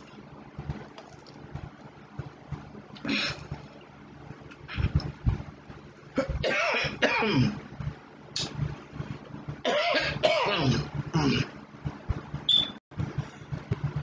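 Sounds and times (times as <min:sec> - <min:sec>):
woman coughing and clearing throat: 0:06.2 - 0:07.6, 0:09.7 - 0:11.5.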